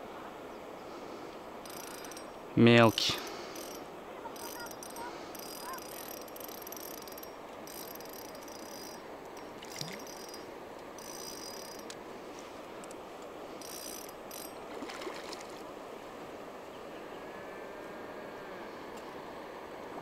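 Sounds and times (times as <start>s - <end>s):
fishing reel clicking whir: 1.6s - 2.4s, 3.5s - 3.8s, 4.4s - 12.0s, 13.6s - 14.6s.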